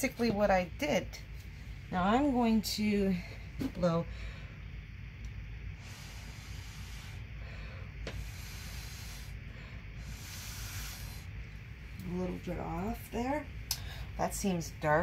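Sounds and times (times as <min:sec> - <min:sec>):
breath blown through straw: 0:10.0 - 0:11.3.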